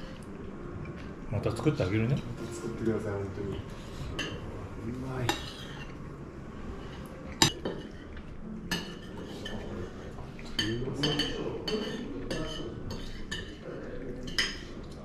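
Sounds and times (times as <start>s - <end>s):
spoons clinking on plates: 10.4s - 13.6s, 14.2s - 14.8s.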